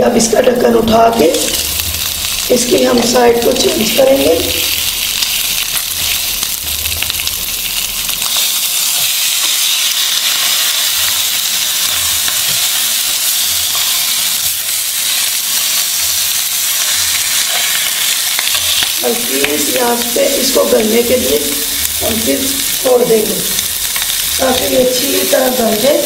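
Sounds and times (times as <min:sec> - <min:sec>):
fish sizzling in a frying pan: 0:01.0 - 0:26.0.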